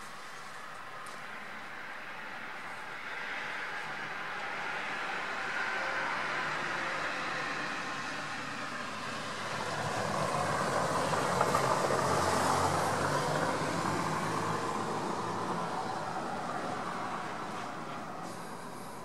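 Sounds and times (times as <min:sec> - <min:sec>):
vehicle passing by: 0:03.0 - 0:19.0.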